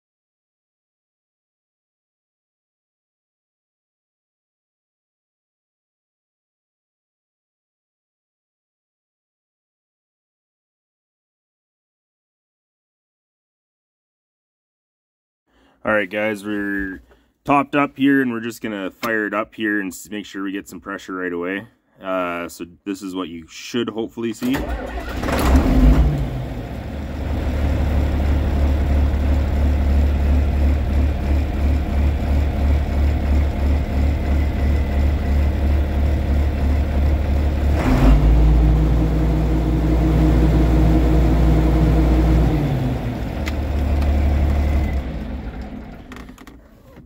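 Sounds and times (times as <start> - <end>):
diesel tractor engine idling: 26.4 - 37.7.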